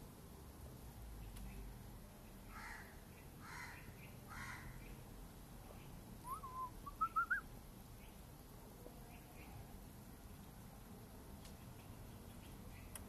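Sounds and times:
songbird whistling: 6.2s - 7.5s.

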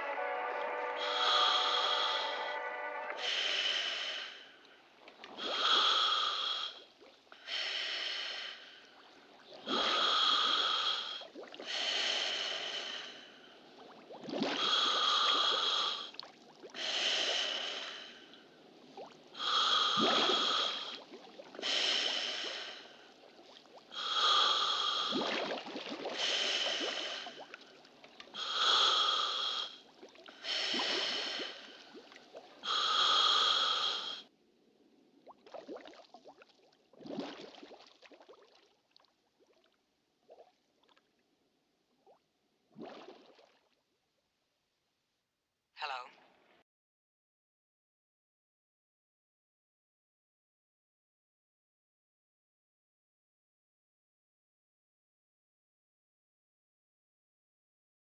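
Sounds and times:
person breathing heavily: 0.0s - 4.6s, 7.4s - 8.8s, 9.7s - 13.5s, 16.8s - 18.3s, 21.6s - 23.0s, 24.0s - 25.2s, 26.2s - 27.4s, 28.4s - 29.8s, 30.4s - 31.9s, 32.6s - 34.3s.

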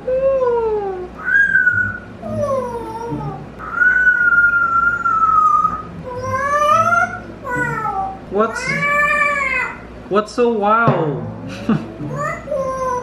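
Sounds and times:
parrot whistling calls: 1.2s - 2.9s, 3.6s - 7.3s.

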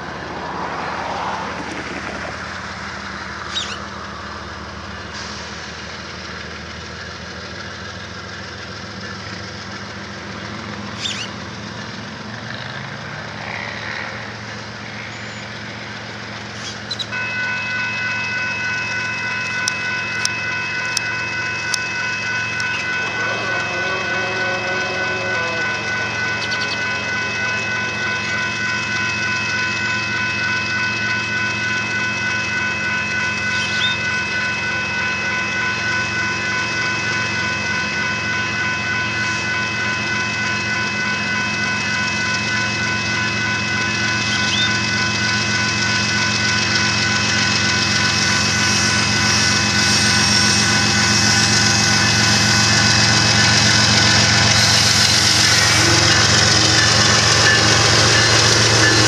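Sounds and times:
diesel locomotive engines: 0.0s - 59.0s
locomotive horn chord: 17.1s - 59.0s.

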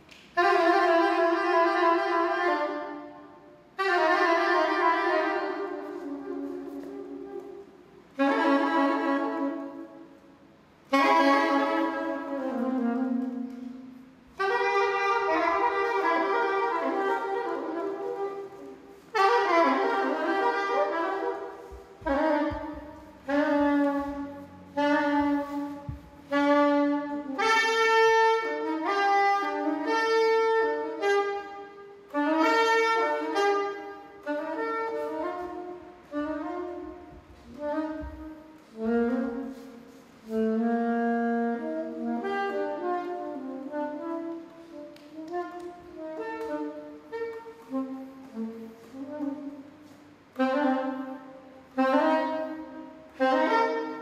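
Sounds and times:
soprano saxophone: 0.0s - 54.0s.

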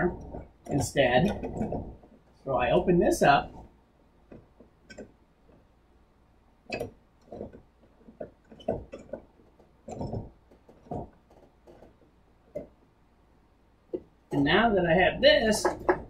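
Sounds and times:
wooden clamp knocks and clicks: 0.2s - 2.2s, 3.6s - 5.7s, 6.7s - 12.9s, 15.4s - 16.0s.

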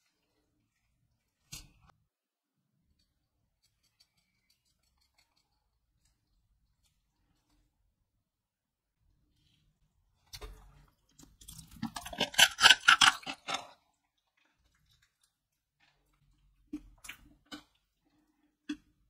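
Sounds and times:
hard candy cracking and crunching: 11.1s - 17.8s.

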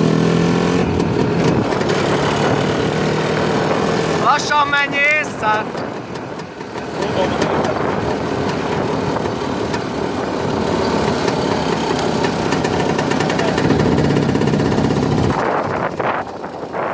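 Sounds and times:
motorcycle engine running: 0.0s - 16.9s.

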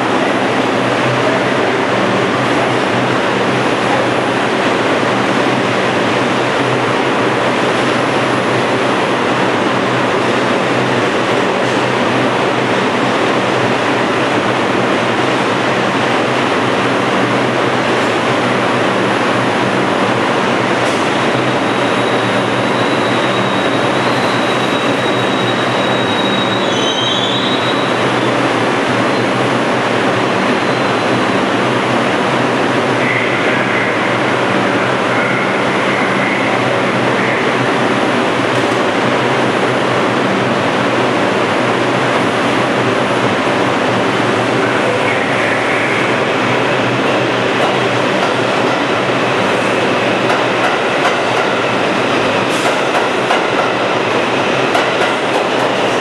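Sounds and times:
subway train rush and hum: 0.0s - 56.0s
faint high squeal: 21.7s - 28.0s.

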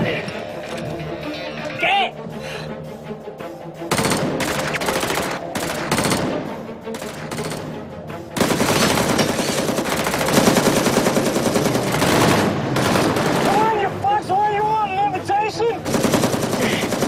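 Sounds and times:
rapid automatic gunfire: 3.9s - 6.4s, 7.0s - 7.7s, 8.4s - 13.8s, 15.8s - 17.0s.

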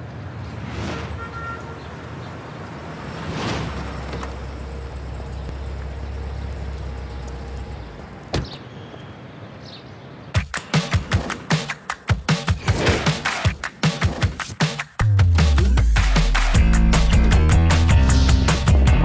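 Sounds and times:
swooshing whooshes: 0.4s - 1.4s, 3.0s - 4.1s.

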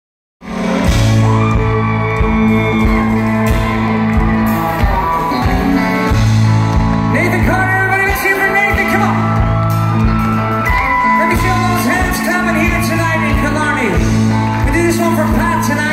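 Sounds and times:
drum beats: 0.4s - 15.9s
live country band playing: 0.4s - 15.9s.

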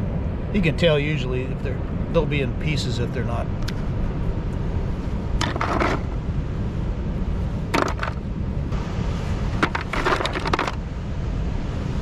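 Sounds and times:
steady low rumble: 0.0s - 12.0s
mussel shells clattering: 5.4s - 6.1s, 7.8s - 8.2s, 9.6s - 10.8s.

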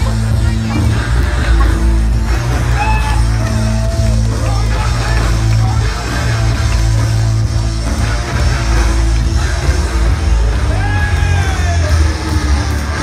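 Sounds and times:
heavy steady bass line: 0.0s - 13.0s
loud rock music with guitar: 0.0s - 13.0s.

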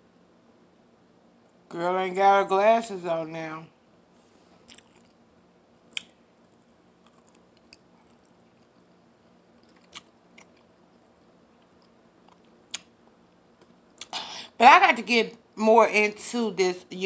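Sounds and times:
faint chewing crackles: 4.5s - 5.2s, 5.9s - 14.2s
broccoli crunching: 4.6s - 5.2s, 5.9s - 8.8s, 9.6s - 11.0s.

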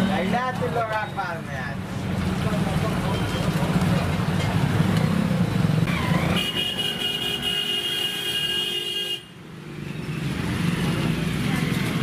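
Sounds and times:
motorcycle engines in mud: 10.2s - 12.0s.

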